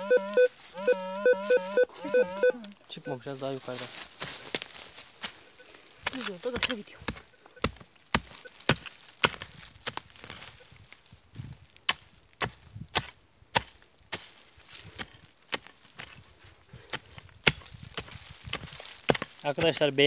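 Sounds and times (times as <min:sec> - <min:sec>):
pick striking stony soil: 0:06.0 - 0:20.0.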